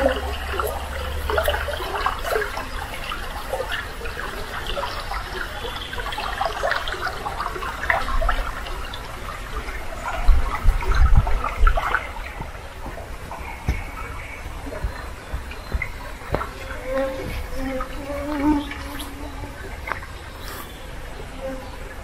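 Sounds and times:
stream gurgling over stones: 0.0s - 22.0s
low thuds: 10.3s - 17.6s.

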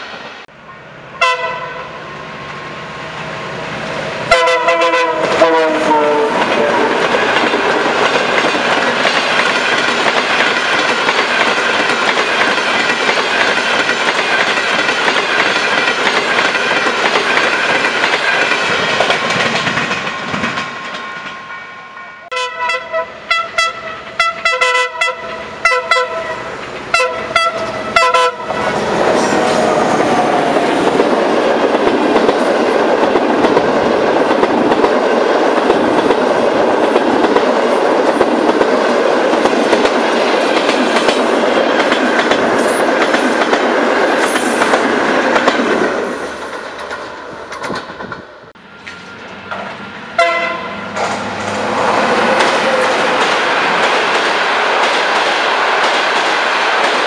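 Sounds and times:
train coaches rumbling past: 0.0s - 57.0s
locomotive horn short blasts: 1.2s - 1.8s, 4.3s - 6.4s, 22.3s - 28.6s, 50.2s - 50.8s
rhythmic clickety-clack of wheels: 6.4s - 21.4s, 29.0s - 49.8s, 52.2s - 57.0s.

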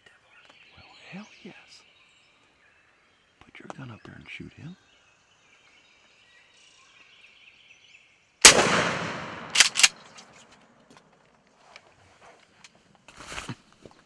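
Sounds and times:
shotgun shot: 8.4s - 10.3s
sharp clicks: 8.5s - 10.4s.

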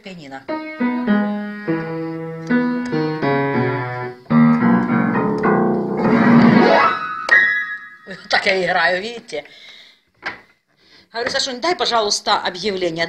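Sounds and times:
upright piano playing: 0.5s - 8.2s.

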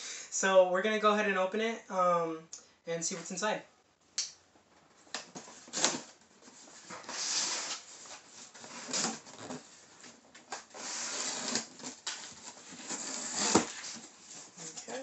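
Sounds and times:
blade slitting packing tape: 10.6s - 12.2s, 12.8s - 14.0s.

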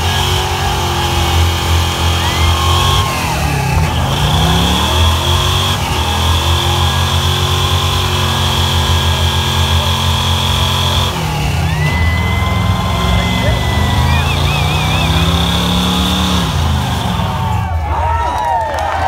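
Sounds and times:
car engine revving: 0.0s - 17.9s.

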